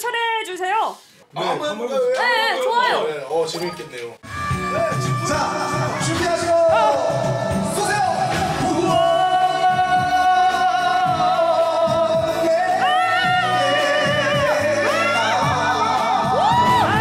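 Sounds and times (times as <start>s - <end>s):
people singing wordless melisma: 4.8s - 17.0s.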